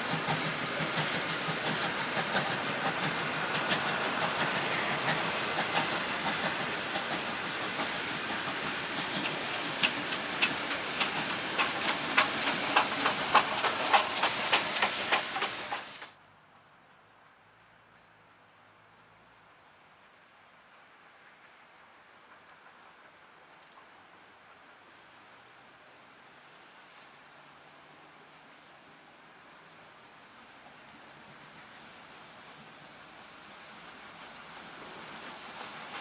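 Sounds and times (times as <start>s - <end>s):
steam hissing: 0.0s - 16.2s, 30.1s - 36.0s
train wheels clattering: 0.0s - 16.2s, 33.9s - 36.0s
wheels clicking over rail joints: 0.0s - 16.2s, 34.0s - 36.0s.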